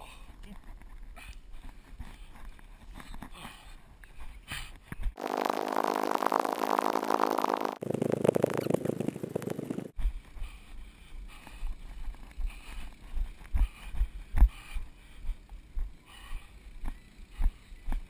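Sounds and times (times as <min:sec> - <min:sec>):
loud droning hum: 0:05.2 - 0:07.8
running footfall thumps: 0:07.8 - 0:09.9.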